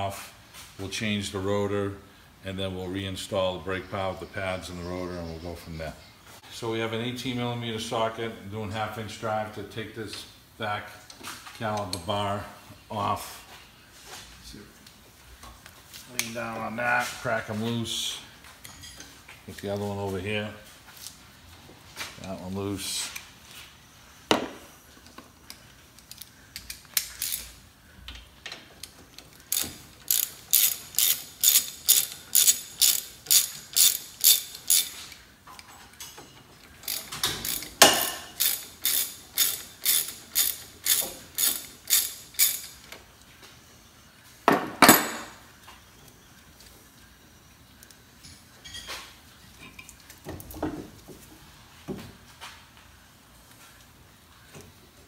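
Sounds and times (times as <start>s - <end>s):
ratchet strokes: 29.5s - 35.0s, 36.8s - 42.8s.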